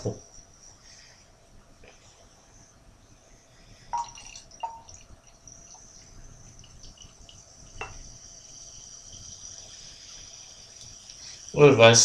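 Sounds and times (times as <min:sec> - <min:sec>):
cider fizzing: 0:03.9 - 0:12.0.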